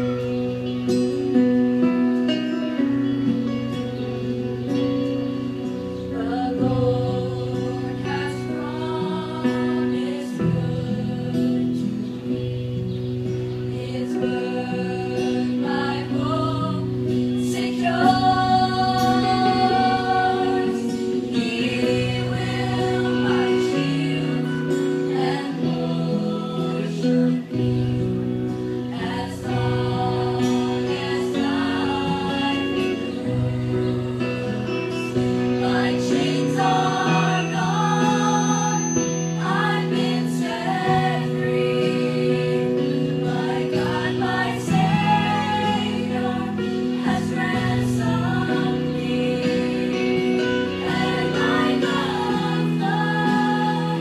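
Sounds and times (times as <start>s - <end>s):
choir singing in harmony: 3.8s - 54.0s.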